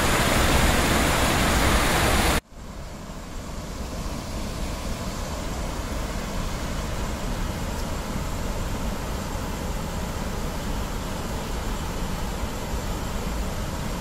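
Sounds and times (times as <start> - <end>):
flooded river rushing: 0.0 - 2.4.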